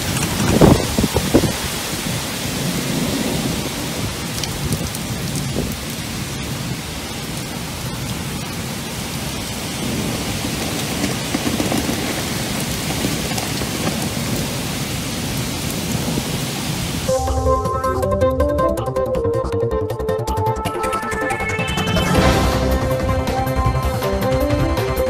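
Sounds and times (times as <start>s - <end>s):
strong wind: 0.0s - 17.1s
heavy rain pouring: 0.0s - 17.3s, 21.1s - 25.0s.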